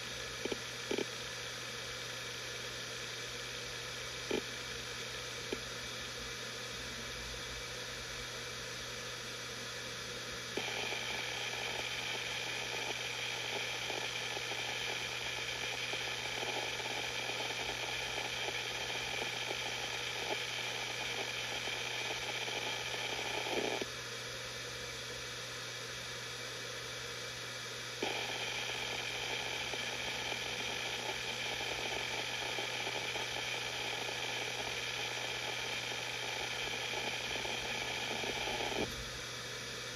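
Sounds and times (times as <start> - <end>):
hard drive heads ticking: 0.0 - 1.1, 10.6 - 23.9, 28.0 - 38.9
hard drive spinning hum: 0.0 - 39.9.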